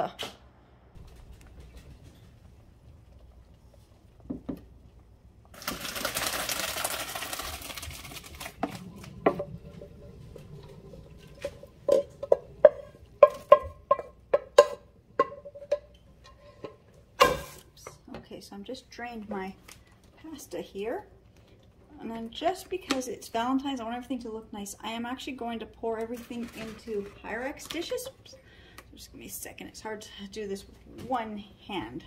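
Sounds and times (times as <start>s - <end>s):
water splashing into colander: 5.5s - 13.6s.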